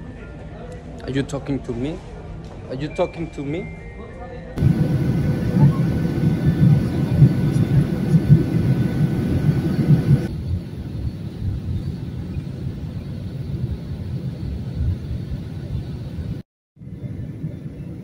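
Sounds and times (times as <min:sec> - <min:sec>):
cabin hiss: 0:04.6 - 0:10.3
aircraft cabin rumble: 0:04.6 - 0:18.0.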